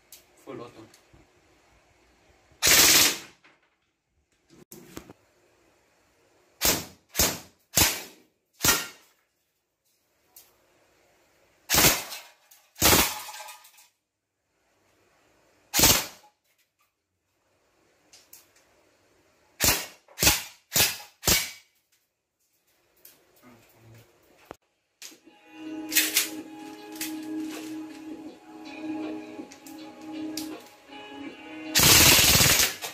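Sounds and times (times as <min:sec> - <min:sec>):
airsoft gun firing bursts: 0:02.6 - 0:03.3, 0:31.8 - 0:32.9.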